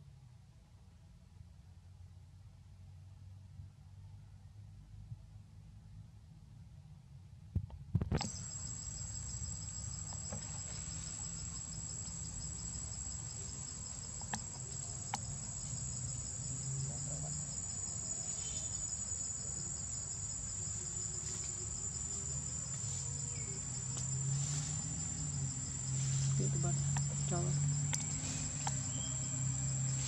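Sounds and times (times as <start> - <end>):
shrill insect chorus: 8.2 - 30.0.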